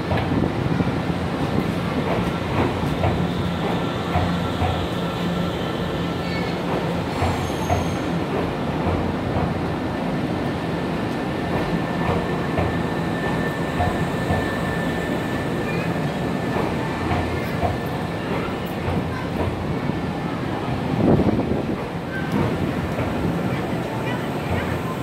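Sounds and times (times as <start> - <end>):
train wheels rumbling: 0.0 - 25.0.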